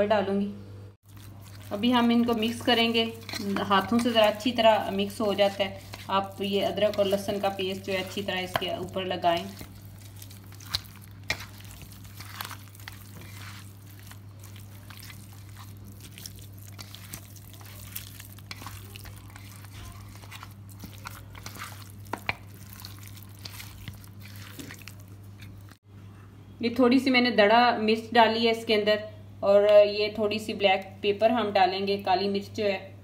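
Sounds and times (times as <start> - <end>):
hands squelching raw meat: 1.0 - 25.8.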